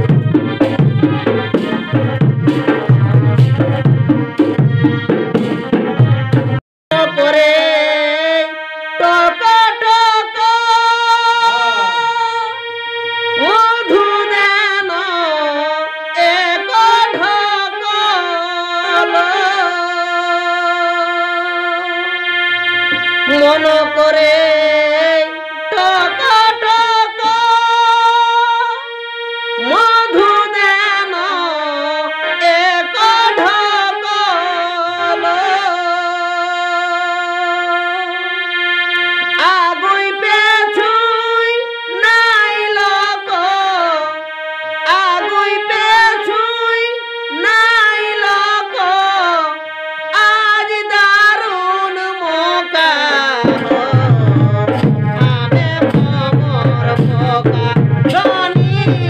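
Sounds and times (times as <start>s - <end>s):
drums: 0.0s - 6.6s, 53.4s - 59.0s
instrumental accompaniment: 0.0s - 59.0s
high voice singing held notes: 6.9s - 22.2s, 39.3s - 59.0s.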